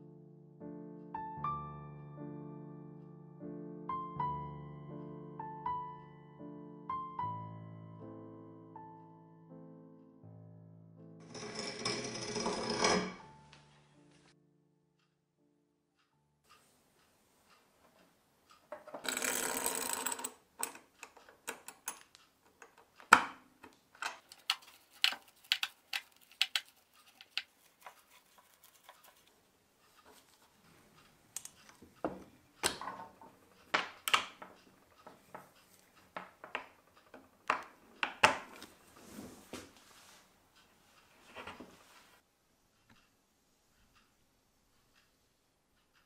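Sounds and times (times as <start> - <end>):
metal parts clicking and tapping: 17.9 - 29.3, 29.9 - 38.7
scraping rustle: 24.2 - 31.1.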